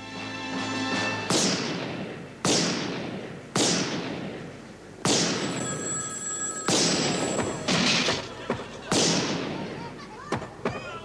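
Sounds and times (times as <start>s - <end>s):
revolver shots echoing: 1.3s - 5.6s
telephone ringing: 5.4s - 7.8s.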